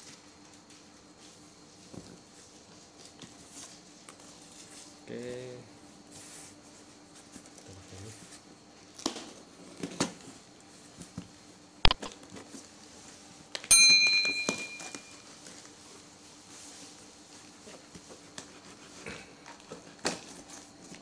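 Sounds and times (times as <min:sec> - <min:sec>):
bell-like ding: 0:13.7 - 0:15.2.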